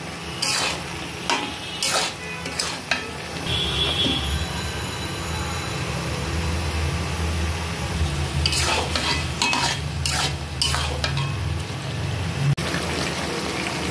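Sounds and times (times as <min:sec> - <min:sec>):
spatula scraping pan: 0:00.4 - 0:04.2, 0:08.4 - 0:11.4.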